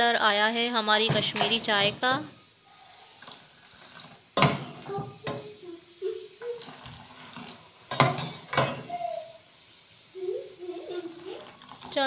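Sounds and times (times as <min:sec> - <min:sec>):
tea splashing into pot: 0:11.0 - 0:12.0.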